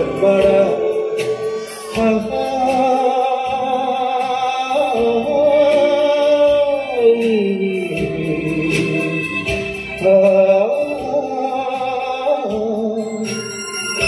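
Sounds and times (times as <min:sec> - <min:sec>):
person singing song with light beat: 0:00.0 - 0:14.0.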